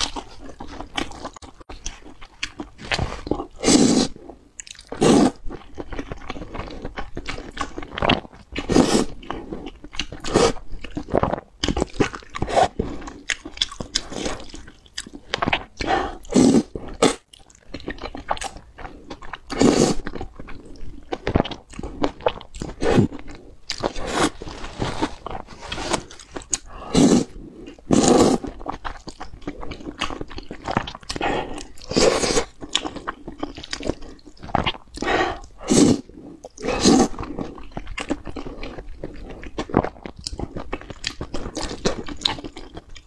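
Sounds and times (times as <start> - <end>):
wet chewing noises: 0.0 - 43.0
person slurping noodles: 2.8 - 4.2, 5.0 - 5.4, 8.6 - 10.6, 12.4 - 12.9, 15.6 - 17.2, 19.5 - 20.1, 22.7 - 23.2, 23.9 - 28.6, 31.1 - 32.5, 33.8 - 37.6.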